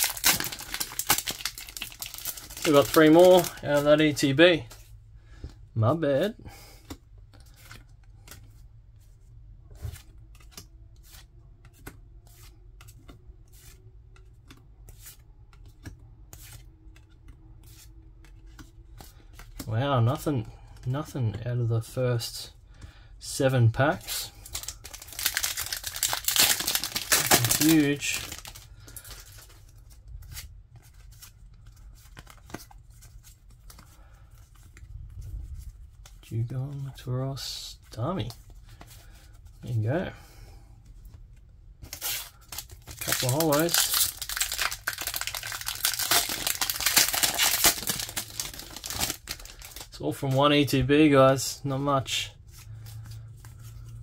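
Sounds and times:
cards sliding and clicking: 0:09.8 - 0:19.6, 0:30.2 - 0:34.8.

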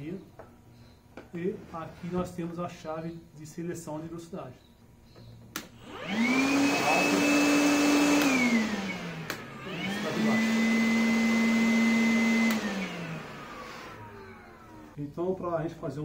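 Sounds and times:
switch click: 0:05.5 - 0:05.7, 0:09.2 - 0:09.5
cordless vacuum motor whine: 0:05.6 - 0:15.0.

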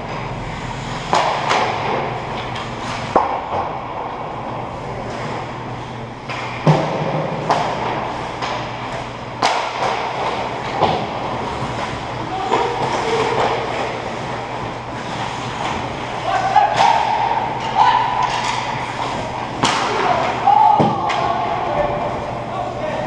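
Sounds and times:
steady low hum: 0:00.0 - 0:23.0
skates and sticks on ice: 0:06.2 - 0:22.2.

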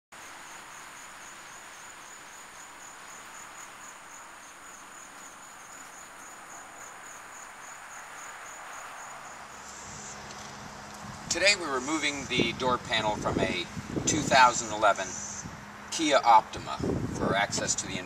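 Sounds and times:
insect chirping: 0:00.1 - 0:10.8, 0:14.9 - 0:15.8
steady hiss: 0:00.2 - 0:12.8, 0:13.5 - 0:18.0.

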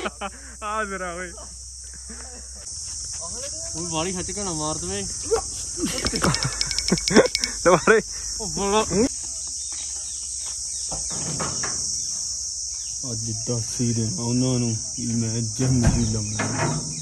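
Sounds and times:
insects shrilling: 0:00.0 - 0:17.0
quick run of clicks: 0:05.9 - 0:07.6.

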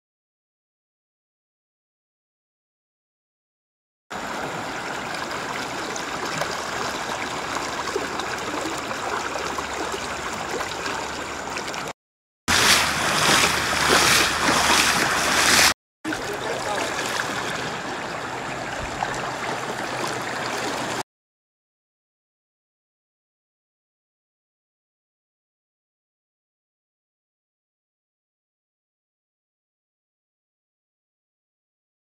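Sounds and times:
floodwater rushing: 0:04.2 - 0:21.0.

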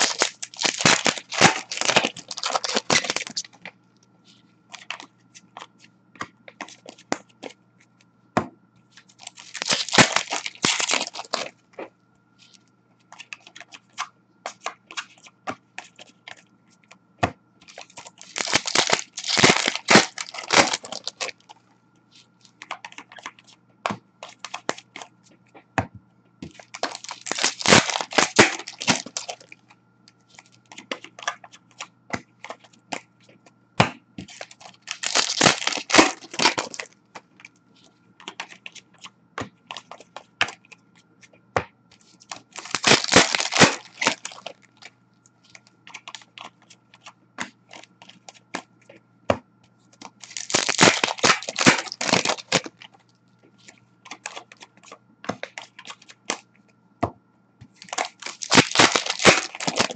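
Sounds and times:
card pack wrappers tearing and crinkling: 0:00.0 - 0:03.6, 0:09.2 - 0:11.5, 0:17.7 - 0:21.4, 0:26.5 - 0:29.5, 0:34.3 - 0:36.9, 0:42.3 - 0:44.6, 0:50.2 - 0:52.9, 0:54.1 - 0:54.6, 0:57.8 - 0:59.9
trading cards snapping and riffling: 0:00.0 - 0:03.7, 0:04.7 - 0:07.6, 0:09.0 - 0:11.5, 0:17.6 - 0:21.4, 0:26.4 - 0:29.6, 0:34.2 - 0:36.9, 0:42.2 - 0:44.9, 0:50.0 - 0:52.9, 0:57.8 - 0:59.9.

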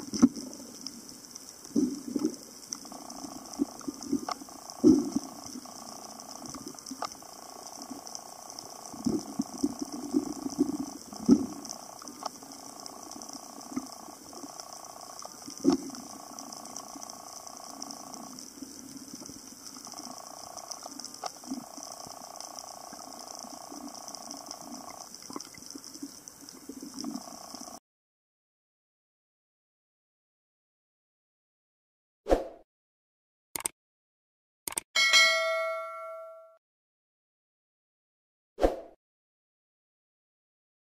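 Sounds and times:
muffled underwater hum: 0:01.7 - 0:27.8.

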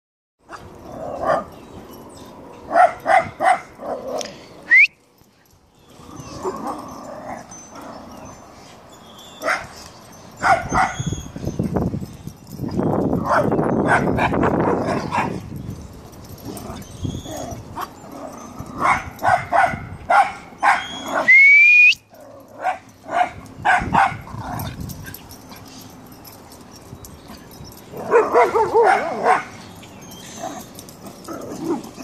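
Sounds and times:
dog barking: 0:02.7 - 0:04.0, 0:09.4 - 0:09.7, 0:10.4 - 0:11.0, 0:13.2 - 0:15.4, 0:18.8 - 0:21.3, 0:22.6 - 0:24.6, 0:28.0 - 0:29.6
dog yelping: 0:10.4 - 0:11.6, 0:16.5 - 0:21.4, 0:25.4 - 0:32.0.

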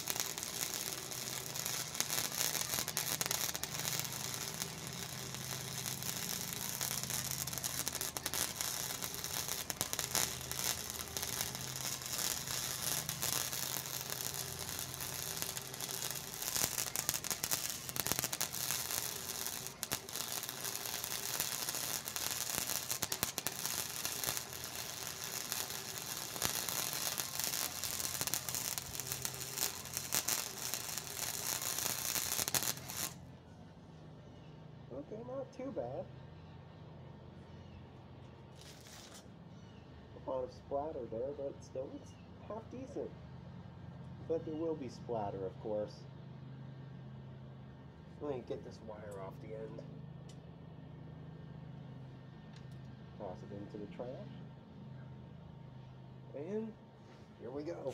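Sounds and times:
welder arc crackling and popping: 0:00.0 - 0:33.3, 0:38.6 - 0:39.3, 0:57.4 - 0:57.9.

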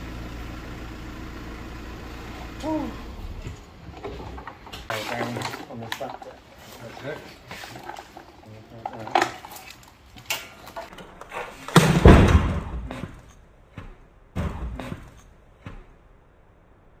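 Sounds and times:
knocks and clunks: 0:07.6 - 0:16.4
heavy low thump: 0:11.8 - 0:13.0.

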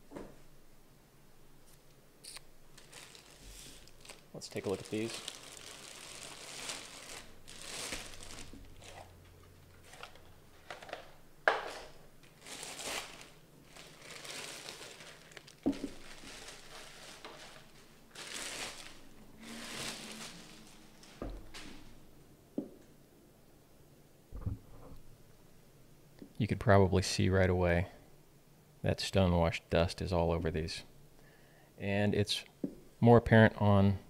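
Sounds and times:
plastic bags crinkling: 0:02.3 - 0:22.0.

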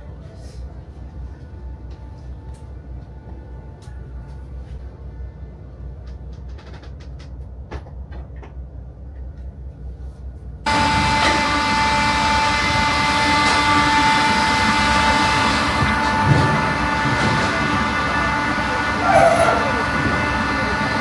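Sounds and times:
low cabin hum: 0:00.0 - 0:21.0
boat engines droning: 0:10.7 - 0:21.0
high whine: 0:10.7 - 0:21.0.

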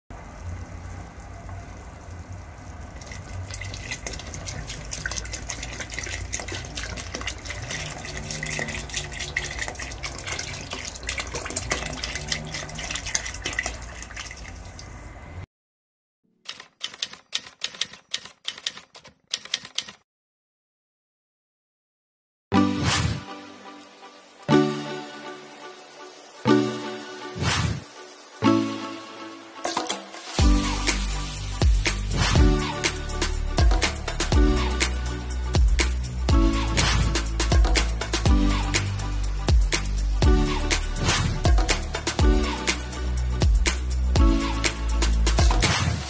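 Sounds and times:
liquid pouring into pot: 0:00.7 - 0:15.1
sharp clicks: 0:16.5 - 0:20.0.

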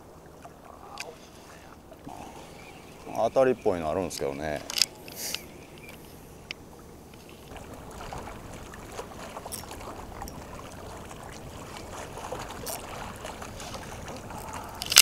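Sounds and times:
small waves lapping against rocks: 0:00.0 - 0:15.0
wind: 0:00.0 - 0:15.0
faint irregular clicking: 0:04.0 - 0:07.4.

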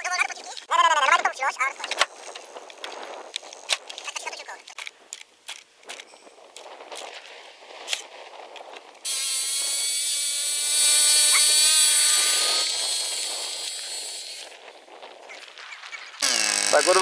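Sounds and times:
model airplane engine buzzing: 0:09.1 - 0:14.5, 0:16.2 - 0:17.0.

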